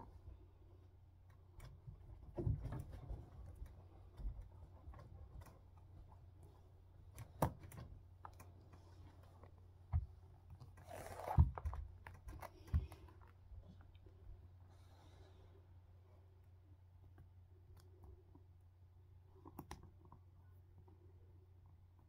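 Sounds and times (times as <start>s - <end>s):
rustling: 7.9s - 15.8s.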